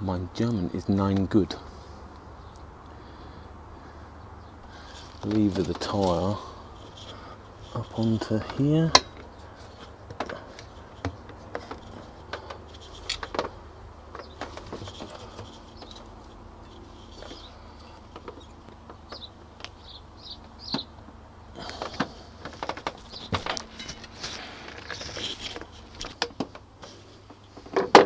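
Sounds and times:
bird chirps: 0:16.7 - 0:21.0, 0:23.0 - 0:23.4.

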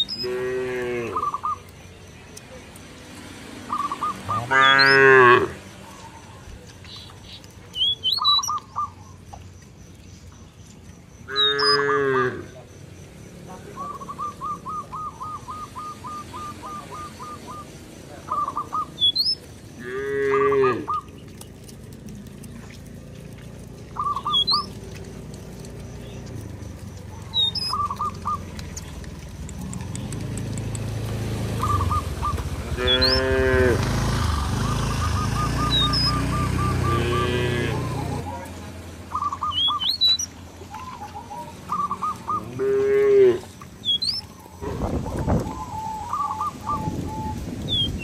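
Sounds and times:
cattle mooing: 0:00.0 - 0:01.4, 0:03.8 - 0:05.6, 0:11.3 - 0:12.6, 0:19.8 - 0:21.1, 0:32.6 - 0:38.3, 0:42.2 - 0:43.5
cattle hooves on gravel: 0:00.0 - 0:11.6, 0:15.8 - 0:46.7
birds chirping: 0:00.0 - 0:48.0.

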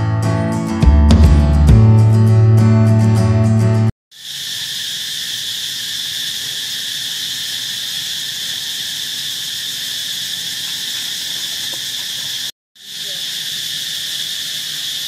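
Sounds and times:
acoustic guitar music: 0:00.0 - 0:03.9
insect chorus droning: 0:04.1 - 0:15.0.

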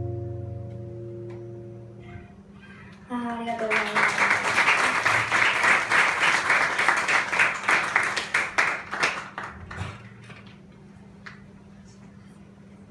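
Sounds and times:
audience applauding: 0:03.2 - 0:10.6.

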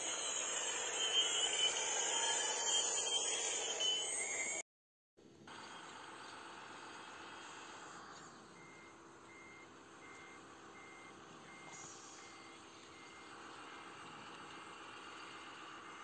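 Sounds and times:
reversing alarm beeps: 0:00.0 - 0:04.6, 0:08.6 - 0:14.0
low hum of model running: 0:05.5 - 0:16.0.

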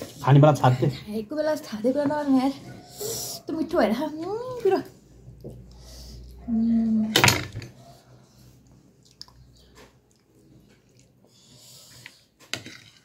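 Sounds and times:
people chewing: 0:08.4 - 0:12.5.

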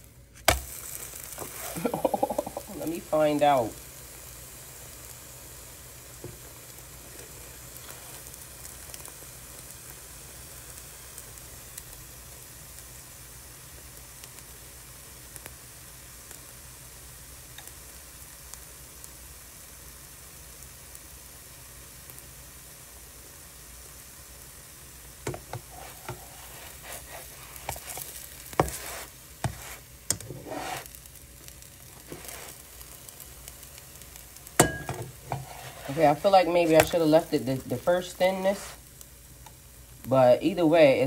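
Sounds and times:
batter sizzling in a frying pan: 0:00.0 - 0:41.0
utensil scraping a pan: 0:25.3 - 0:31.0, 0:31.8 - 0:32.8, 0:34.6 - 0:37.2, 0:38.0 - 0:38.8.

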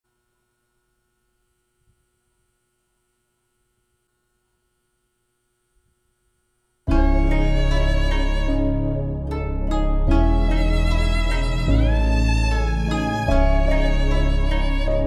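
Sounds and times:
faint steady hum: 0:00.1 - 0:15.0
faint low thumps: 0:06.9 - 0:15.0.

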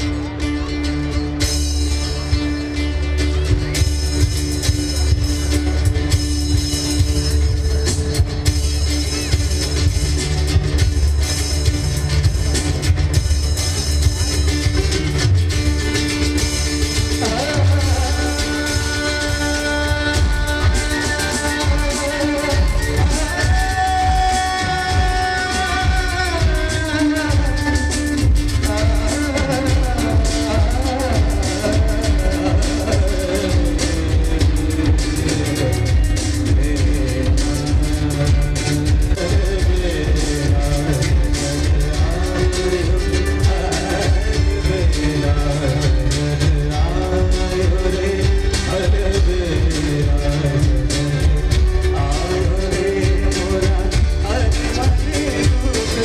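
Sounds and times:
acoustic guitar: 0:00.0 - 0:56.0
heavy bass and drum backing: 0:00.0 - 0:56.0
person singing: 0:15.9 - 0:56.0.

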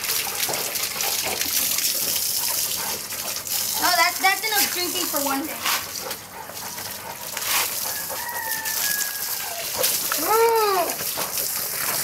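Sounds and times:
water running from a tap: 0:00.0 - 0:12.0
rooster crowing: 0:07.8 - 0:09.8.

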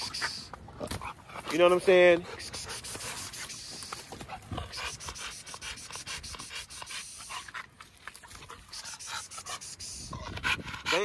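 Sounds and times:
dog panting rapidly: 0:00.0 - 0:11.0.

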